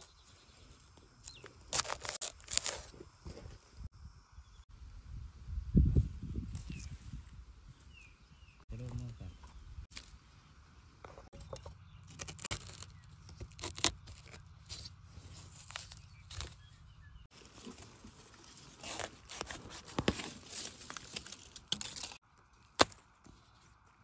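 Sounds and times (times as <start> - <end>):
dry leaves rustling and crackling: 1.4 - 3.0, 11.4 - 23.8.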